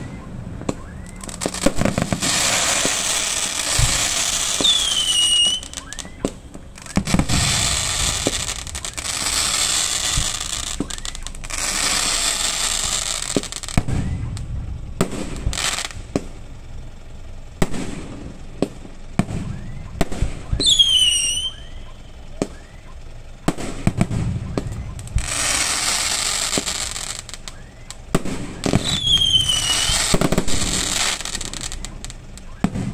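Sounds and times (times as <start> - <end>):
falling firework whistle: 0.0 - 14.5, 19.2 - 23.0, 23.6 - 32.9
fireworks bursting with bangs: 0.0 - 32.9
fireworks crackling hiss: 0.0 - 32.9.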